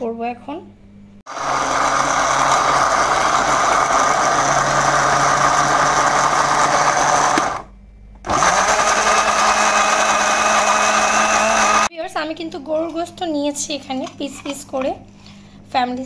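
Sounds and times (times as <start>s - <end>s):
electric blender grinding: 1.3s - 11.9s.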